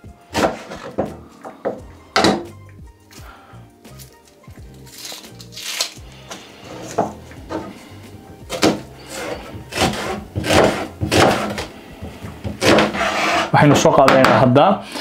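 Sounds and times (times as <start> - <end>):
knife slicing onion on board: 0.3 - 2.5, 8.5 - 13.5.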